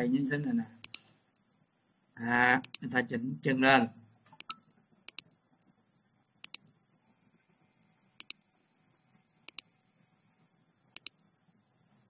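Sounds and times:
faint room hiss: 0:00.0 - 0:12.0
computer mouse clicking: 0:00.8 - 0:01.5, 0:02.6 - 0:02.9, 0:04.3 - 0:05.7, 0:06.4 - 0:06.8, 0:07.8 - 0:08.5, 0:09.2 - 0:09.8, 0:10.4 - 0:11.3.

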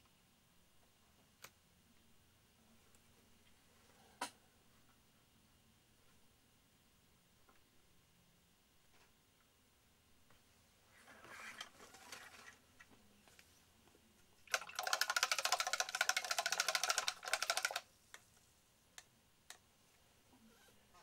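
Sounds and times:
rattle of rapid clicks: 0:14.5 - 0:17.8.

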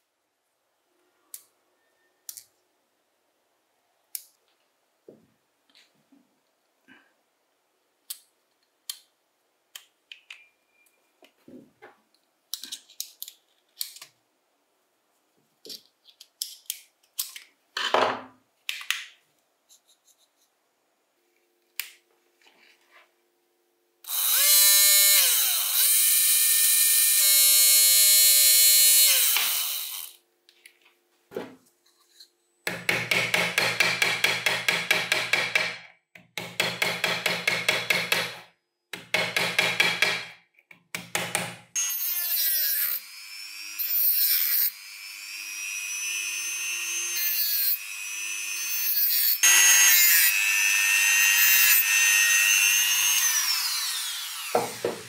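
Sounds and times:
small power tool whirring: 0:24.1 - 0:30.2, 0:41.8 - 0:55.0.

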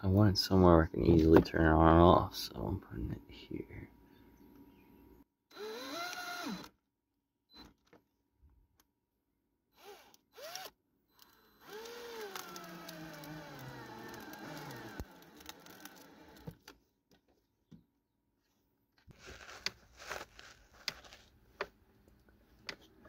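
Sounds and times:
cordless drill whining: 0:05.5 - 0:06.8, 0:09.7 - 0:16.6.

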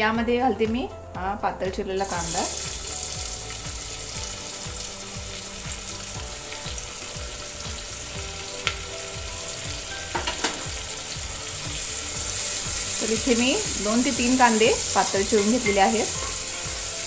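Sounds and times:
onion sizzling in oil: 0:02.0 - 0:17.0.

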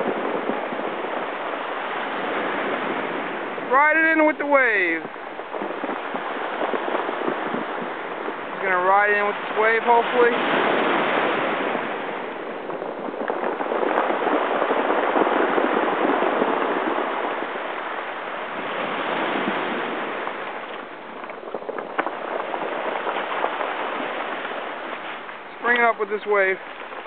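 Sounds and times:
surf washing over cobblestones: 0:00.0 - 0:27.0.

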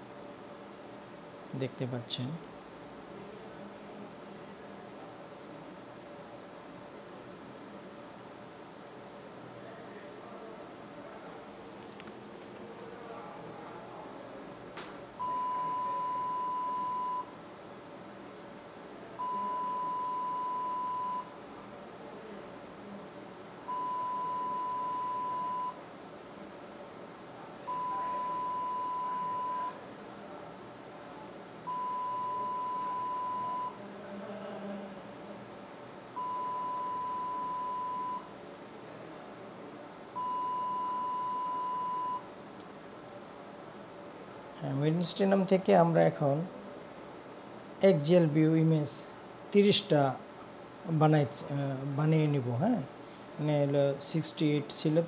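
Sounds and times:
electronic alarm beeper tone: 0:27.7 - 0:29.8.

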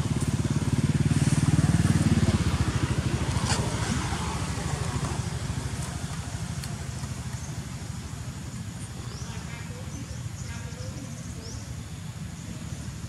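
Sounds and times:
small engine running: 0:00.0 - 0:08.8.

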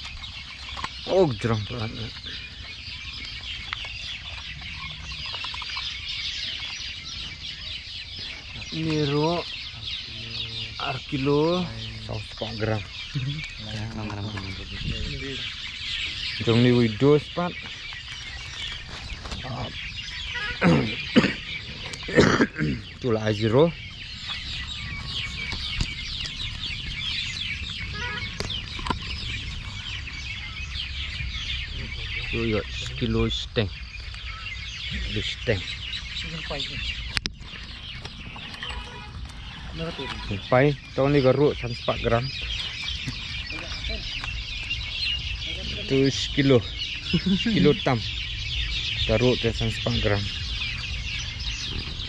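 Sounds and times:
chorus of descending chirps: 0:19.4 - 0:52.0
low rumble: 0:22.8 - 0:52.0.

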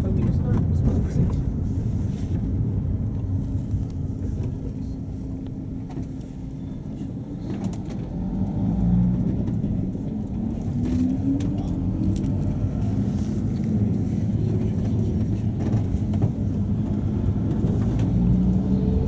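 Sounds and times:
minibus engine and road noise: 0:00.0 - 0:19.0.

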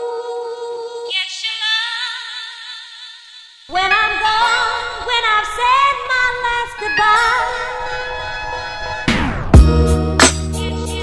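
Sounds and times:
person singing with vibrato: 0:00.0 - 0:08.6, 0:10.5 - 0:11.0
song with deep bass: 0:09.1 - 0:11.0.

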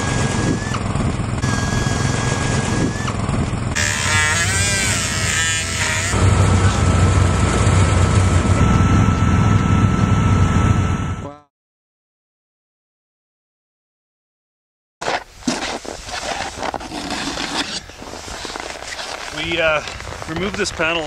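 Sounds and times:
cut-off wheel whining: 0:00.0 - 0:11.3
low motor drone: 0:00.0 - 0:11.5.

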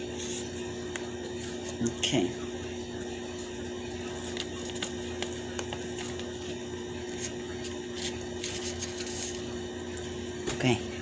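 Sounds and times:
notebook pages rubbing and clicking: 0:07.2 - 0:09.4.

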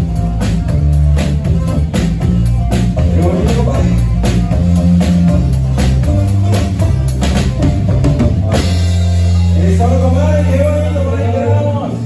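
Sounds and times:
bass notes: 0:00.0 - 0:12.0
drum kit beat: 0:00.0 - 0:12.0
guitars: 0:00.0 - 0:12.0.

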